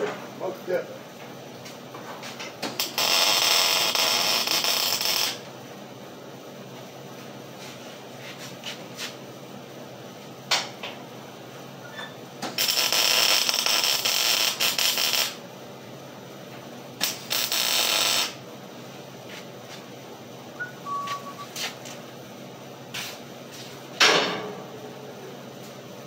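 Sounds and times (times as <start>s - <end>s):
welding arc crackling: 2.6s - 5.5s, 12.4s - 15.4s, 17.0s - 18.4s.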